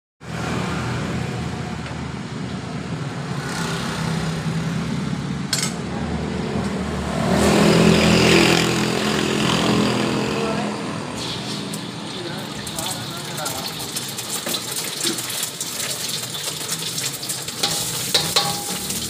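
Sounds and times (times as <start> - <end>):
food sizzling in hot oil: 11.2 - 19.0
gas burner humming: 17.3 - 19.0
sharp clink: 17.6 - 19.0.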